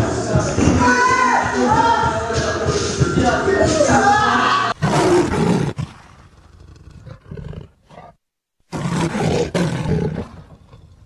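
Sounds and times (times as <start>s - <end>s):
big cat roaring: 4.8s - 11.0s.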